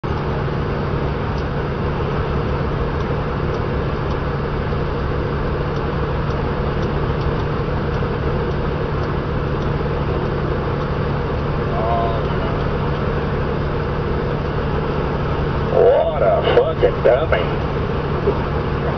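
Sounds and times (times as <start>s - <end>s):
road noise: 0.0s - 18.9s
truck engine drone: 0.0s - 18.9s
faint high ticks: 2.4s - 4.9s, 5.7s - 11.5s.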